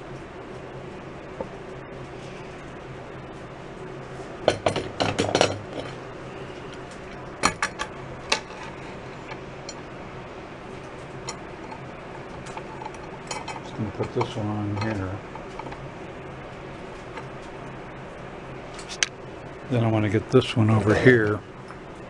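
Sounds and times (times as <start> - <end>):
metal clamps clinking: 12.4 - 15.8.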